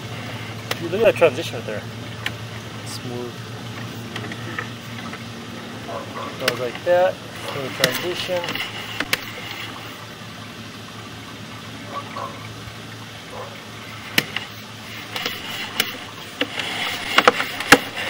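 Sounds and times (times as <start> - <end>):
steady low hum: 0.0 - 18.0
sharp clicks and knocks: 0.6 - 1.0, 6.3 - 9.6, 14.1 - 18.0
water-like hiss: 6.9 - 10.2.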